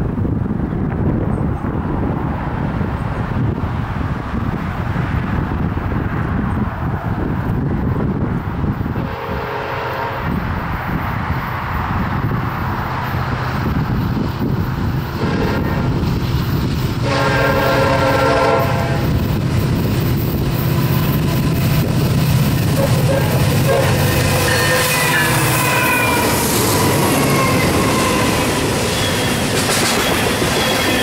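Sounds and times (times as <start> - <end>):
diesel engines rumbling: 0.0 - 31.0
train horn blasts: 9.0 - 10.4, 15.2 - 16.0, 17.0 - 19.2, 22.7 - 31.0.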